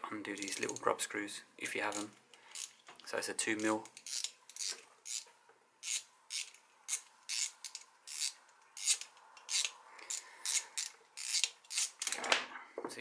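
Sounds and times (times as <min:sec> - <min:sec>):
hex key scratchy metal rasps: 0:03.4 - 0:12.2.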